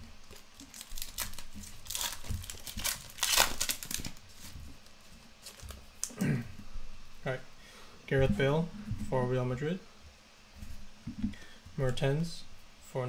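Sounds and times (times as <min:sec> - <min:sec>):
foil wrapper crinkling: 0:00.2 - 0:06.1.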